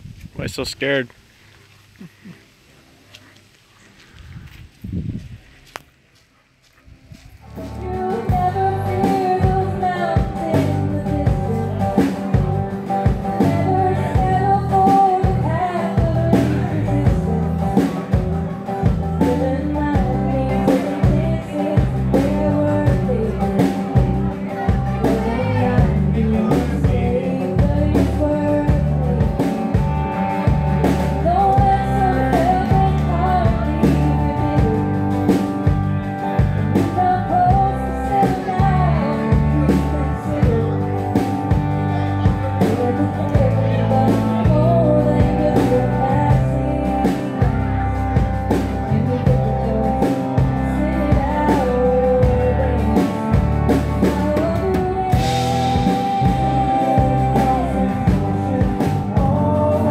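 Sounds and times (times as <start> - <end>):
rock band playing: 7.4 - 59.9
person singing: 7.5 - 59.9.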